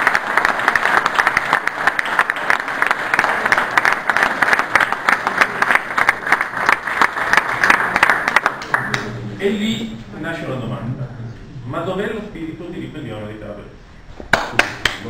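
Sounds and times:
audience applauding: 0:00.0 - 0:09.1, 0:14.3 - 0:15.0.

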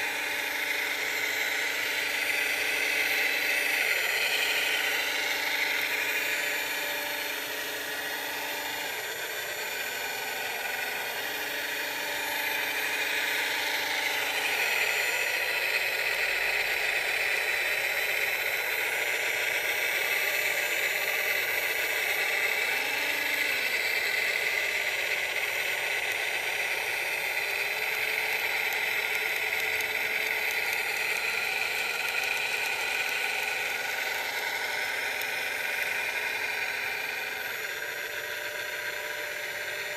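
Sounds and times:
electric motor whine: 0:00.0 - 0:39.9.

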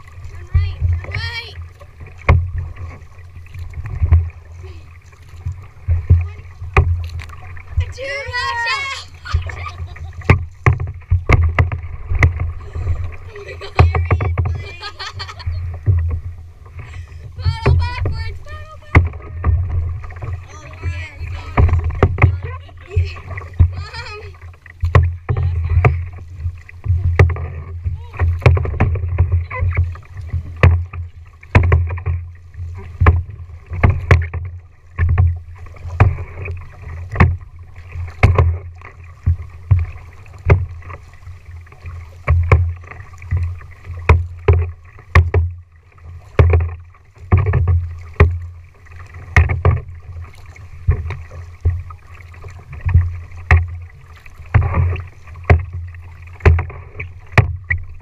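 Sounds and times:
paddle splashing into water: 0:00.0 - 0:58.0
knock through plastic hull: 0:13.6 - 0:14.7, 0:21.5 - 0:23.9, 0:38.2 - 0:38.6, 0:44.0 - 0:45.6, 0:46.3 - 0:48.5, 0:54.5 - 0:57.8.

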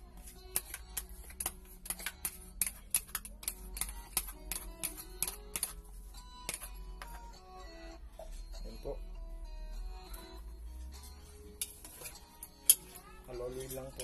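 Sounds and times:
background music: 0:00.0 - 0:14.0
metal spoon scraping plastic bowl: 0:00.2 - 0:07.2.

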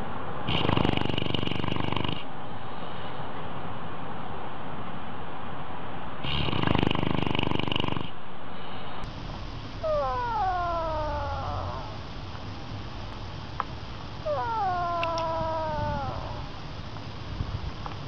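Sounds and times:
dog snoring: 0:00.5 - 0:02.3, 0:06.2 - 0:08.2, 0:09.8 - 0:12.0, 0:14.2 - 0:16.6
small animal whining: 0:09.8 - 0:12.5, 0:14.2 - 0:16.9.

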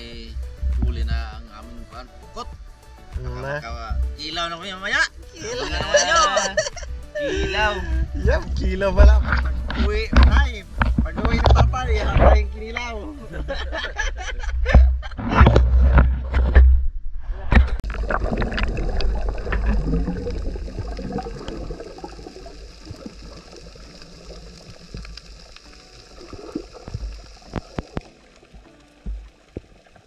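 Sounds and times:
underwater bubbling and gurgling: 0:14.4 - 0:30.0.

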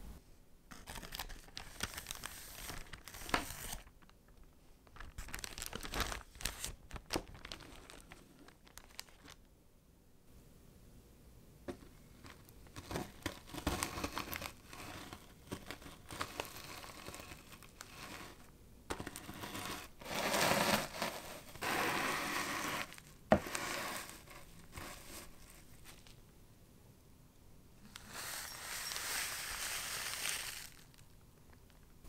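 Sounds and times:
plastic bag crinkling: 0:00.7 - 0:09.5, 0:12.2 - 0:18.0, 0:28.0 - 0:31.9.

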